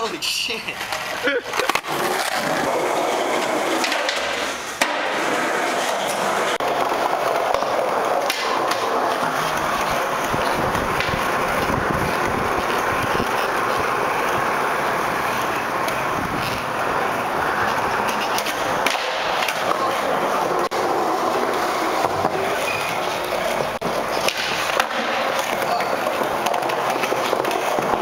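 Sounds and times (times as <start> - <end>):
skateboard wheels rolling on concrete: 0.0 - 28.0
skateboard clacks: 0.8 - 28.0.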